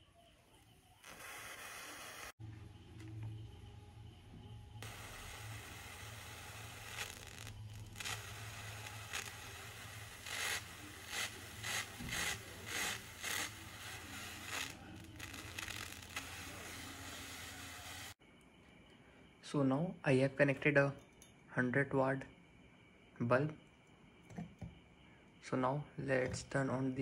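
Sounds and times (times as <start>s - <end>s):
tesla coil crackling hiss: 0.0s - 3.6s, 4.8s - 18.2s
loud crackling bursts: 1.0s - 2.4s, 4.8s - 18.2s
low hum: 2.4s - 10.2s.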